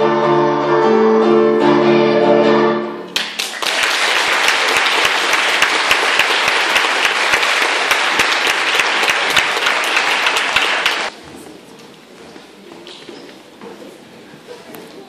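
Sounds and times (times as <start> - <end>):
audience applauding: 3.2 - 11.1.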